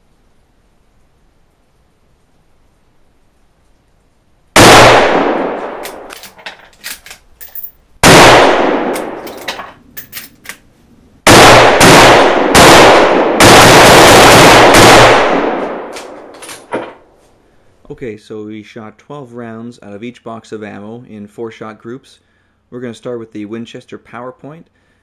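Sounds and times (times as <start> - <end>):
rifle shots echoing: 4.6 - 6.3, 8.0 - 9.5, 11.3 - 17.0
rifle bolt metallic clicks: 5.7 - 7.7, 8.9 - 10.6.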